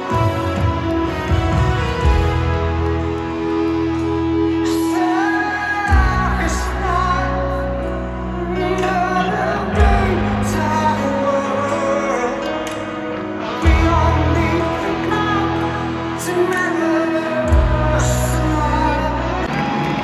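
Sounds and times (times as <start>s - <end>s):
keyboard and bass chords: 0.0s - 20.0s
live rock band: 0.0s - 20.0s
lead vocal singing: 4.3s - 20.0s.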